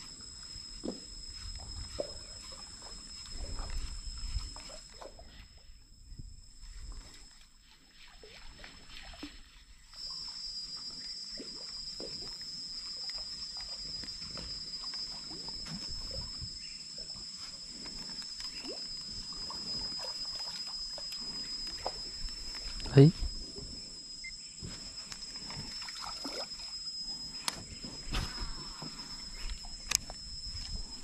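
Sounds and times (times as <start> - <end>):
high-pitched insect drone: 0.0 - 31.0.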